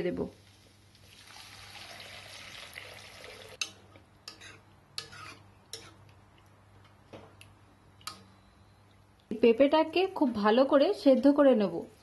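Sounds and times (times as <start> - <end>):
water pouring into a pan: 0.9 - 3.6
spoon stirring and clinking pan: 3.6 - 6.0.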